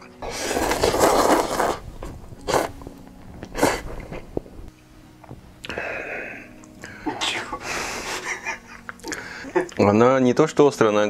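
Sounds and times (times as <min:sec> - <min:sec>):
person slurping noodles: 0:00.2 - 0:04.7.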